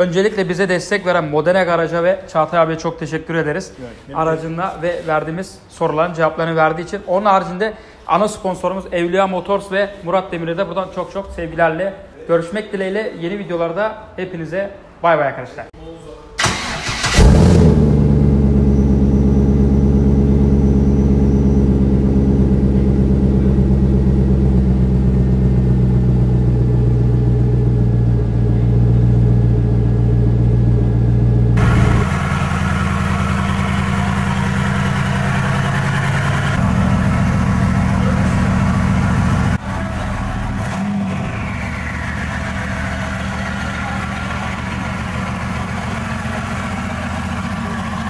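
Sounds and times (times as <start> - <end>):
car engine deep rumble: 16.6 - 48.0.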